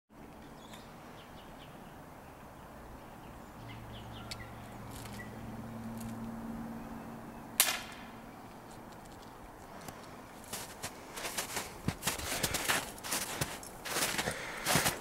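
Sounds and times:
bird chirps: 0.4 - 5.5
sharp gunshot: 7.6 - 8.1.

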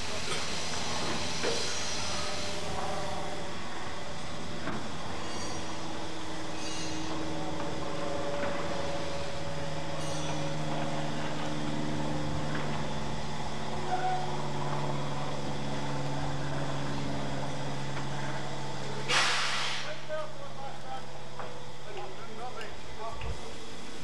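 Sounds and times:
steady mechanical hum: 0.0 - 24.0
faint high squeaks: 5.2 - 5.8, 6.5 - 7.2.

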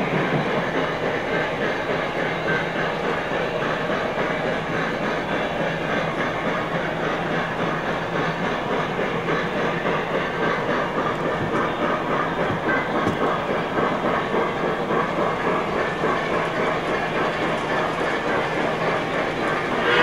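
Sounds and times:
model trains rolling on track: 0.0 - 20.0.

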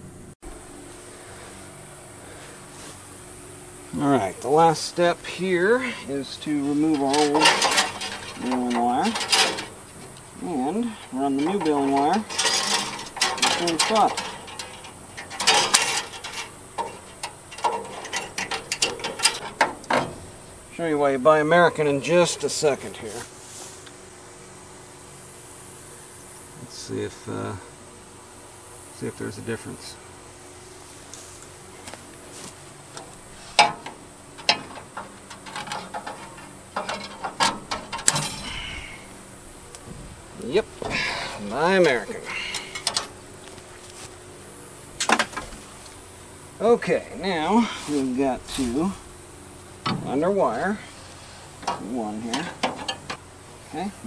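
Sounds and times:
wire scraping and clinking on steel: 4.4 - 20.8, 32.9 - 39.8, 40.4 - 44.1, 49.9 - 53.8
wire cutters snipping wire: 11.4 - 20.1.

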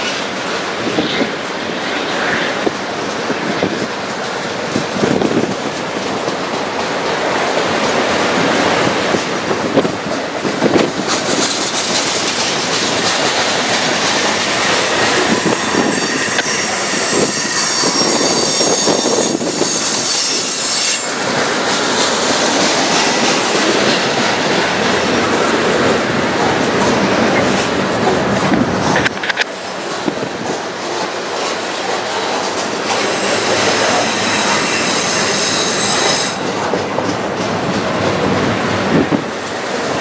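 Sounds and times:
freight train rumbling and clattering: 0.0 - 40.0
train wheels squealing: 7.9 - 24.1, 31.4 - 36.8.

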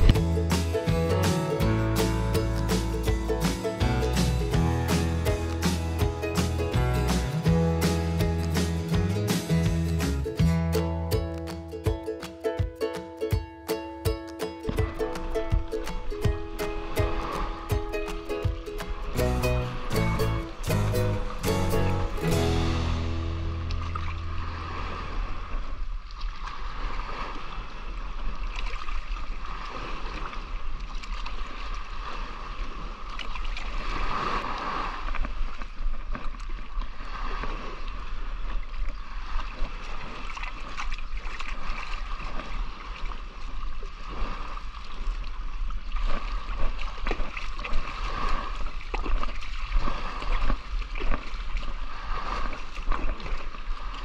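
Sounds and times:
steady low rumble: 0.0 - 11.4, 19.0 - 26.2
water sloshing and splashing: 0.0 - 54.0.

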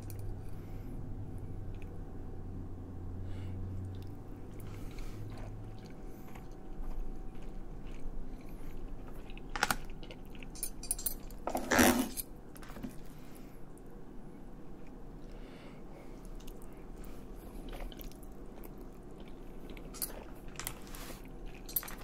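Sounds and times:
person chewing: 3.7 - 11.5, 16.1 - 22.0.

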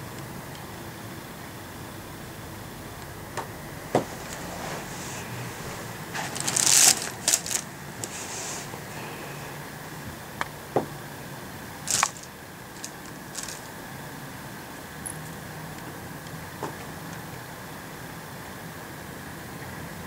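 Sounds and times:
nylon tunnel rustling and crinkling: 3.9 - 9.5, 11.8 - 13.8.

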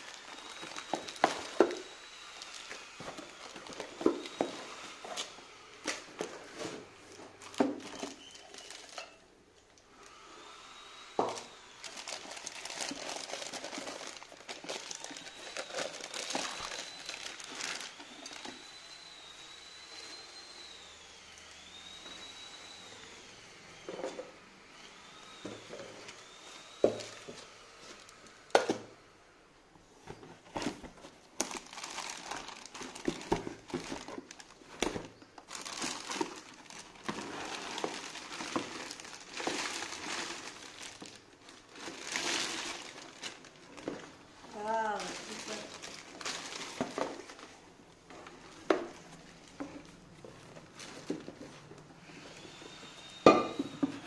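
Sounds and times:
plastic bags crinkling: 0.0 - 6.5, 7.2 - 10.2, 11.2 - 18.7, 30.5 - 51.7.

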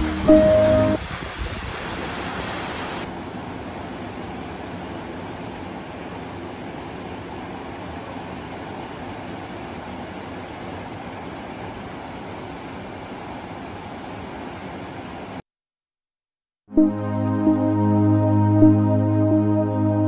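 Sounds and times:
waterfall rushing: 0.0 - 3.1.

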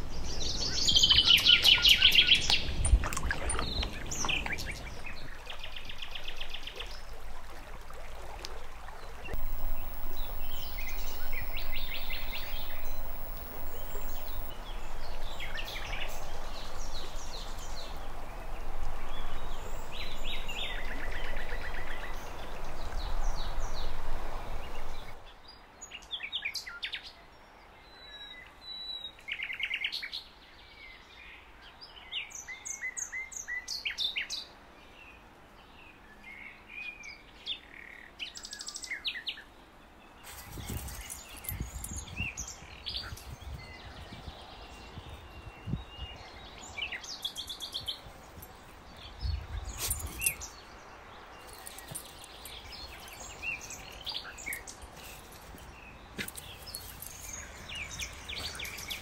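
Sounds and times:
birds singing and calling: 0.0 - 25.3, 40.2 - 59.0.

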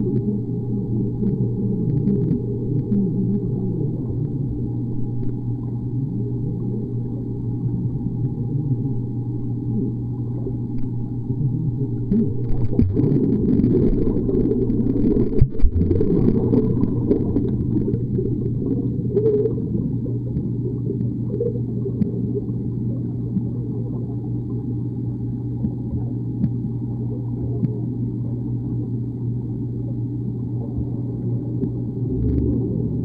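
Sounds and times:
steady low underwater hum: 0.0 - 33.0.

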